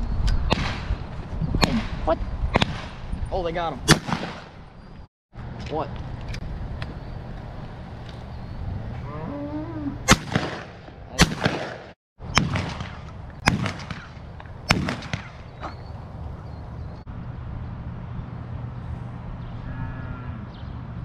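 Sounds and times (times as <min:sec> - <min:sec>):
shotgun shots: 0:00.5 - 0:00.9, 0:01.6 - 0:03.0, 0:03.9 - 0:04.6, 0:10.1 - 0:15.8.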